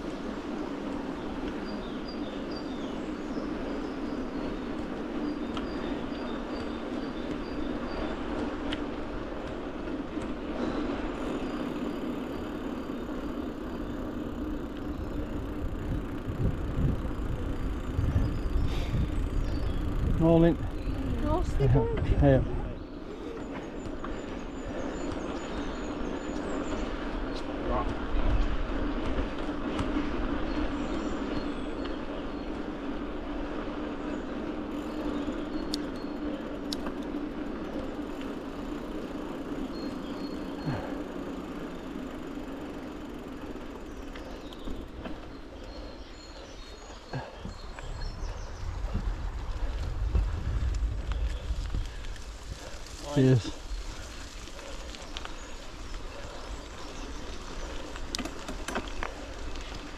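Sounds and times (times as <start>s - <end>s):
bike tyres rolling hum: 0.0s - 59.9s
low rumble: 47.5s - 58.0s.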